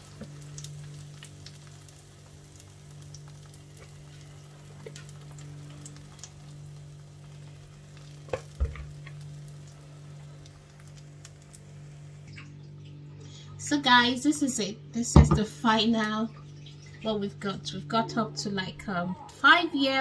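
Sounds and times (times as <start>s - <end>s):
batter sizzling in a frying pan: 0.0s - 12.3s
faint crackles: 0.0s - 12.5s
steady low hum: 0.0s - 20.0s.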